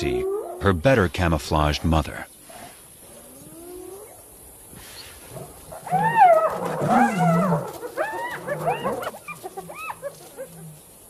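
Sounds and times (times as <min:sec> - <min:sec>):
hyenas yelping: 0:05.3 - 0:10.9.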